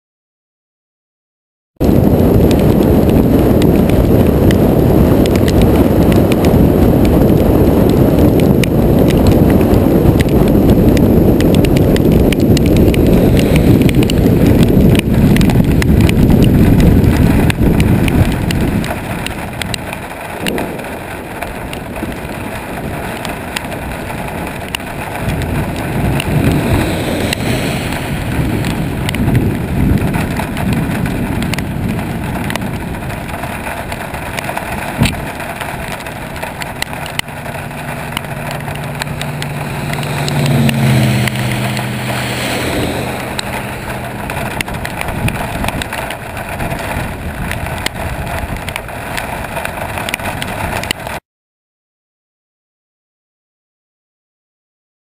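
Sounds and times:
rain and wind rushing: 1.8s - 51.2s
road noise: 1.8s - 51.2s
low steady hum: 35.0s - 46.6s.

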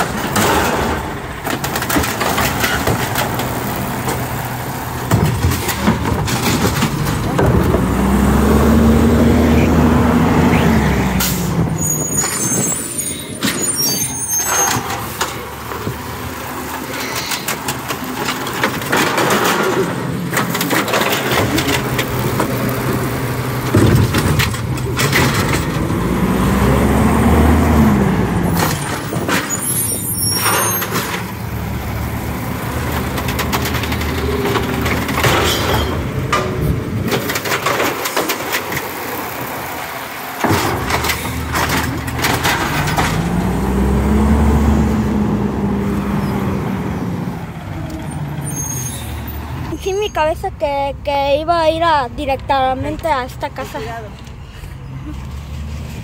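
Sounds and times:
truck engine revving: 0.0s - 53.0s
bin clattering and squeaking: 11.2s - 15.5s, 28.4s - 31.4s, 33.0s - 39.0s, 40.4s - 43.4s, 48.0s - 50.4s.

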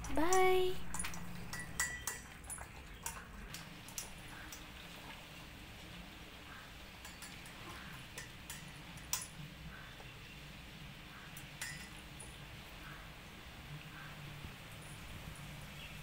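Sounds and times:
clinks against metal bowl: 0.0s - 4.6s, 7.0s - 9.4s, 11.6s - 12.3s
puppies lapping and chewing: 0.8s - 9.4s.

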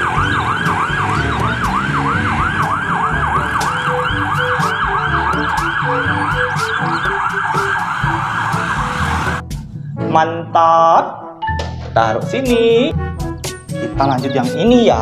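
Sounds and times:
toy siren yelping: 0.0s - 9.4s.

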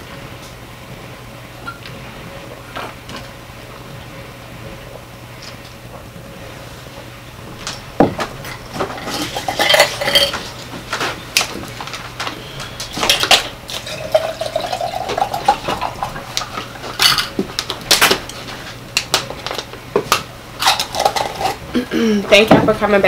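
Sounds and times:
tableware clinking: 9.0s - 10.5s, 17.0s - 17.4s
water pouring into a glass: 13.8s - 16.2s.

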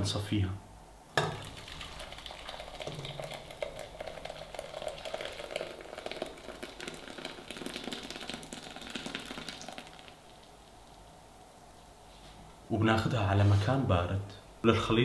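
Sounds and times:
liquid pouring through strainer: 1.2s - 11.1s.

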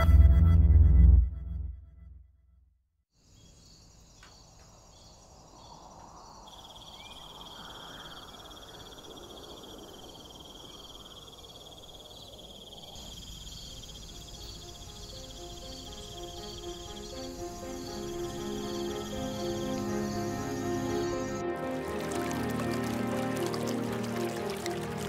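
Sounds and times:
steady high insect trill: 3.2s - 21.5s
insects chirring: 3.2s - 25.0s
pulsing insect chorus: 3.2s - 25.0s
soft music: 13.7s - 25.0s.

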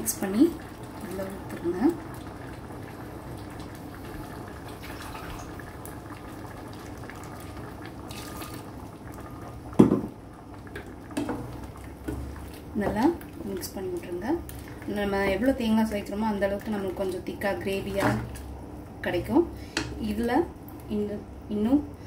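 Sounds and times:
pot simmering soft bubbling: 0.0s - 20.9s.

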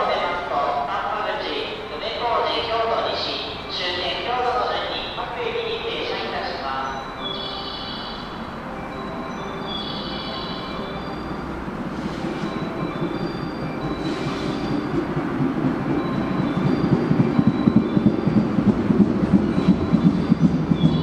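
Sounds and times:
train wheels rumbling on rails: 7.4s - 21.0s.

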